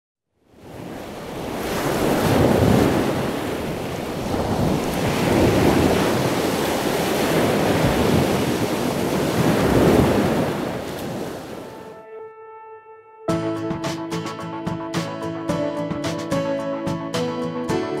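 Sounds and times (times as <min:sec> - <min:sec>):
ocean surf breaking on beach: 0:00.6 - 0:11.9.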